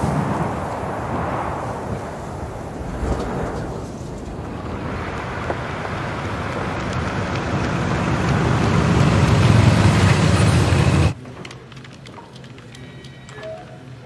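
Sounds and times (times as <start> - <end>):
car engine and road noise: 2.8 - 11.2.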